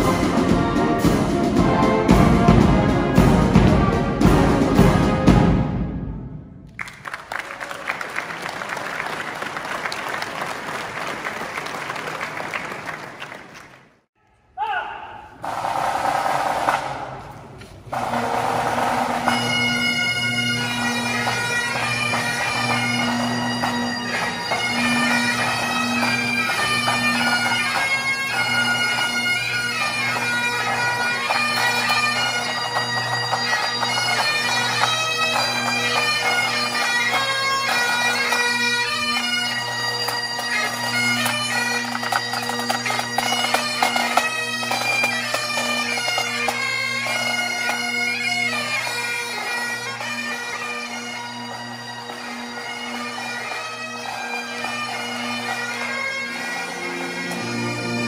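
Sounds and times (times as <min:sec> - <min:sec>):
bagpipes playing: 0:17.9 - 0:58.0.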